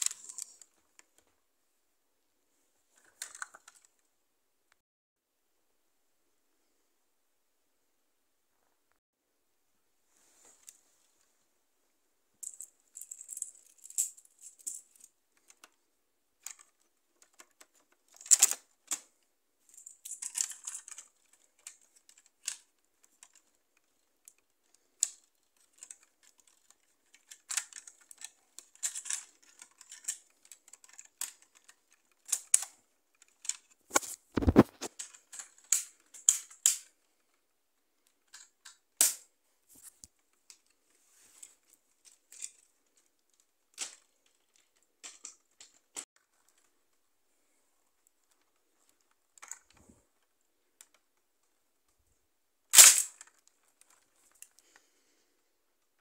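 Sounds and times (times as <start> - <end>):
plastic bricks clicking and rattling: 0.0 - 0.8, 3.0 - 4.0, 16.4 - 37.4.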